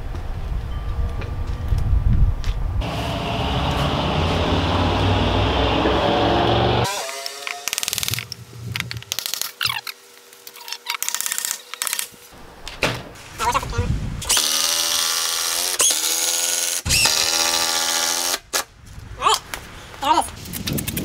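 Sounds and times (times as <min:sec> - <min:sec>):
loud low rumble: 0:01.2 - 0:06.9
power drill running: 0:02.8 - 0:08.1, 0:14.3 - 0:18.4.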